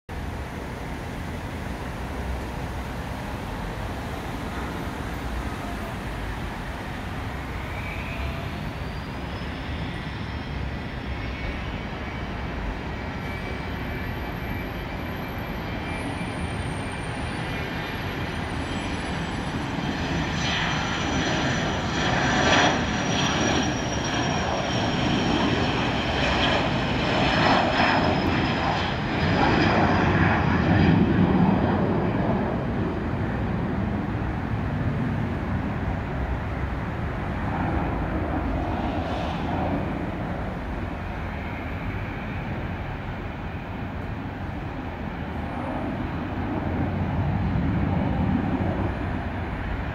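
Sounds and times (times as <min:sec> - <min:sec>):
jet engine high whine: 0:00.1 - 0:49.9
jet engine rushing noise: 0:15.6 - 0:49.9.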